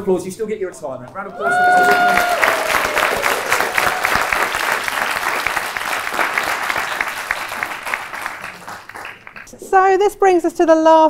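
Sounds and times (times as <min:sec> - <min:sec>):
people applauding: 0:01.2 - 0:09.6.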